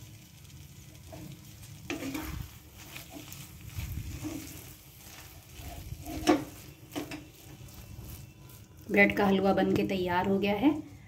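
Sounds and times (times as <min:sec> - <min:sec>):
spatula scraping a pan: 0:00.9 - 0:10.0.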